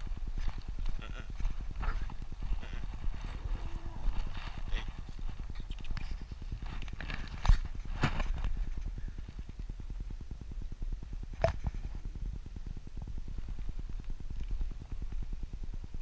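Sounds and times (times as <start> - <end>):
footsteps and paws on dirt trail: 0.0 - 9.6.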